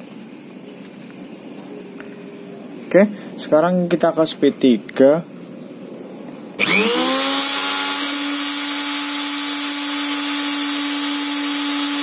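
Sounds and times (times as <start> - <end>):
blender motor high whine: 6.6 - 12.0.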